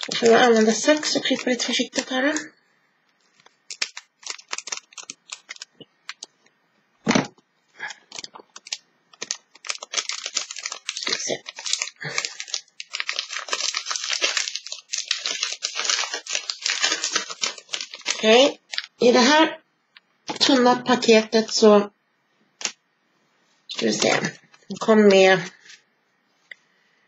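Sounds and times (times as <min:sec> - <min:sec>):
wrapper crinkling and rustling: 0:00.0 - 0:02.5, 0:03.2 - 0:06.4, 0:07.8 - 0:19.3, 0:23.7 - 0:25.8
scissors snipping wrapper: 0:03.4 - 0:06.3, 0:08.0 - 0:18.9
thump: 0:07.0 - 0:07.3.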